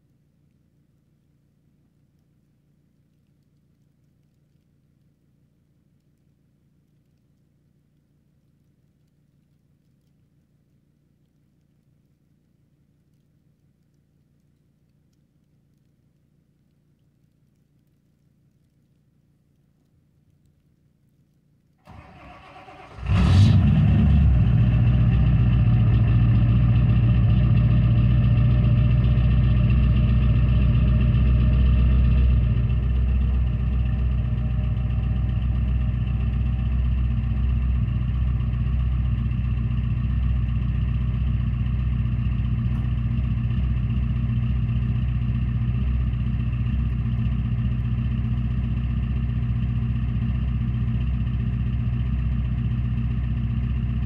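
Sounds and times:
diesel engine cranking: 21.9s - 27.6s
diesel engine fast idle: 21.9s - 54.0s.

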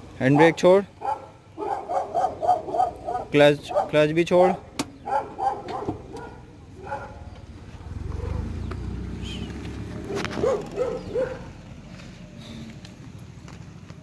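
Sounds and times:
car engine low rumble: 4.6s - 14.0s.

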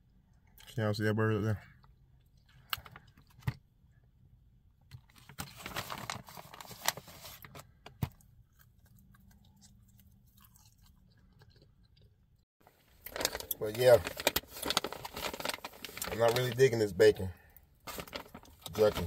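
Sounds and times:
person chewing jerky: 8.2s - 12.4s.

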